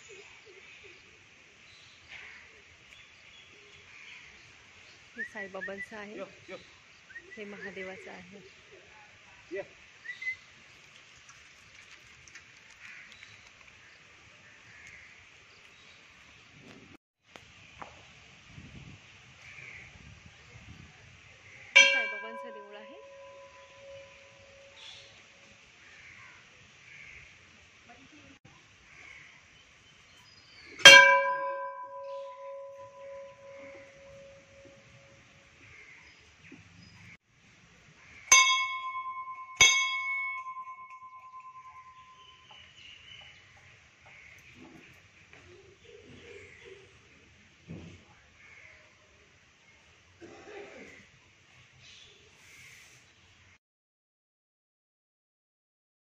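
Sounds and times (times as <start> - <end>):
soft outdoor hiss: 0.0 - 53.6
small ticks: 10.8 - 13.9
temple bell ringing: 21.8 - 24.8, 30.8 - 35.0, 38.3 - 42.4.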